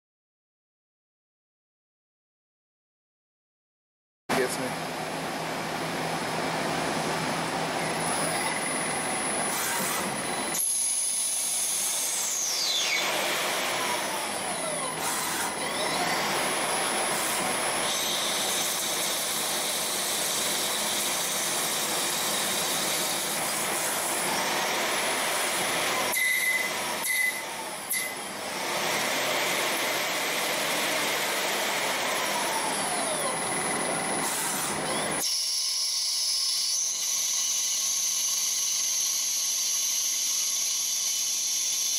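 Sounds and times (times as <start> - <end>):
lathe machine noise: 7.0 - 41.9
falling whines: 7.8 - 18.5, 31.9 - 35.8.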